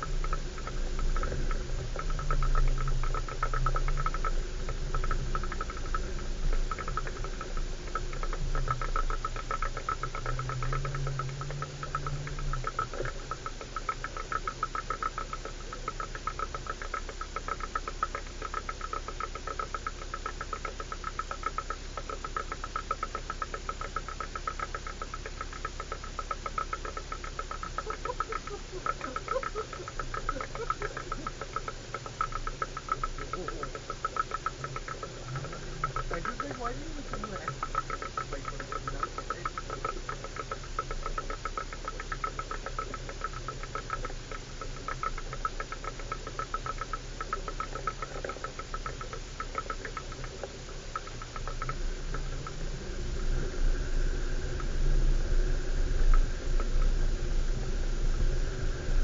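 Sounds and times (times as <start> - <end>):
fast ticking rattle: 0.0 - 59.0
low engine note: 50.5 - 59.0.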